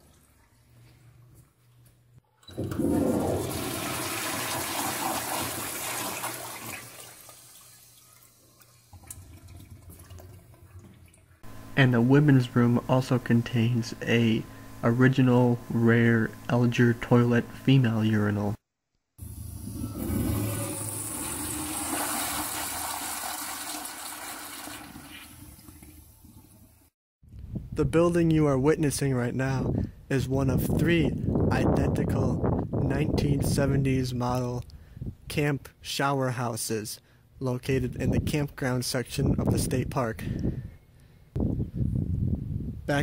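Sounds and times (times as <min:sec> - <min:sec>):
toilet flushing: 0:02.5 - 0:11.7, 0:19.2 - 0:26.9
water trickling: 0:03.4 - 0:11.4.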